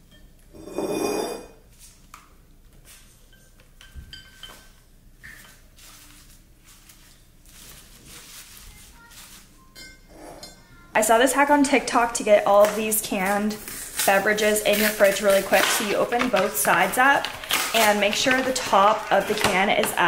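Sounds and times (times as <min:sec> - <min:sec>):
glass and ceramic clinks: 0:03.3 - 0:04.8, 0:09.8 - 0:10.6
flower stems rustling: 0:05.6 - 0:09.9, 0:12.4 - 0:20.0.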